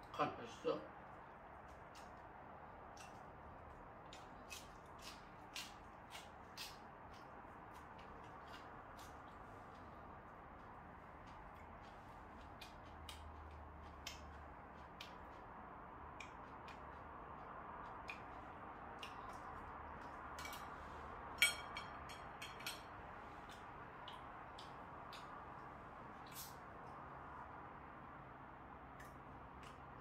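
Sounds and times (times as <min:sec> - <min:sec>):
faint room hum: 0:00.0 - 0:30.0
chewing fried chicken: 0:01.0 - 0:27.3, 0:28.9 - 0:30.0
chopsticks clicking on plates: 0:20.3 - 0:20.8, 0:21.4 - 0:25.4.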